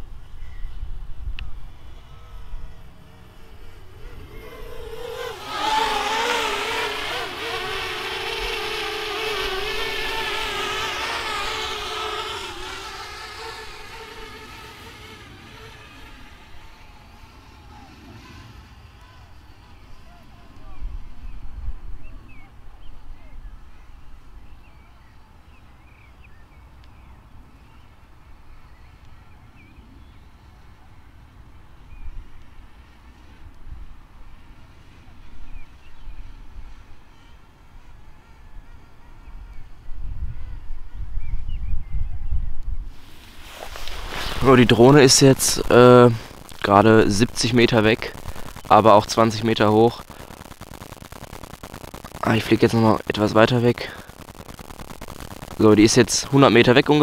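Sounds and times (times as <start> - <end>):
drone propellers whining: 0.8 - 20.4, 43.0 - 57.0
wind rumble on microphone: 20.6 - 24.4, 39.2 - 48.7
small birds chirping: 43.2 - 57.0.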